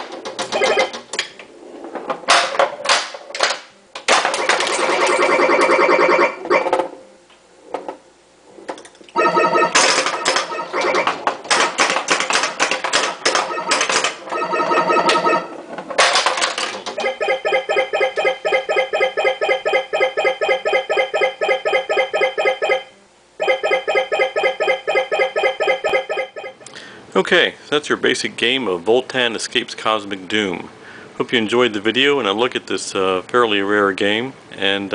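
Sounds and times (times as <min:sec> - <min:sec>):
pinball mechanical clacks: 0:00.0 - 0:01.4, 0:02.2 - 0:07.0, 0:09.2 - 0:26.7
fast repeated synthesized beeps: 0:00.6 - 0:00.9, 0:04.8 - 0:06.6, 0:09.2 - 0:11.2, 0:13.4 - 0:15.5, 0:17.0 - 0:26.6
electronic sound effects: 0:09.2 - 0:11.2, 0:17.0 - 0:26.6.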